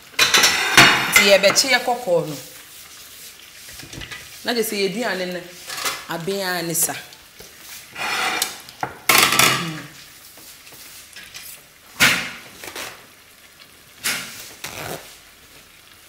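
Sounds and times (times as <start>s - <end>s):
dishes clattering: 0.2s - 1.7s, 8.2s - 9.9s.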